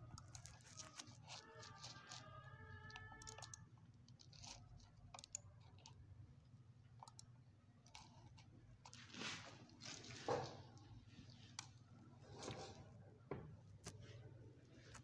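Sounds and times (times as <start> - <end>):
computer mouse clicks: 0.0 - 6.0, 6.9 - 9.0.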